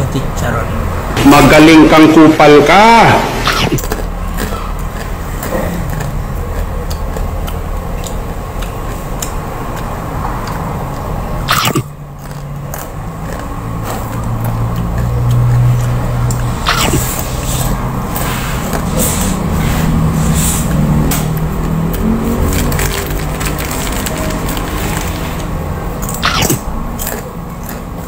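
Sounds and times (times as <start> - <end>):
engine running: 0.0 - 28.0
brief sharp noise: 3.4 - 3.8, 26.2 - 26.6.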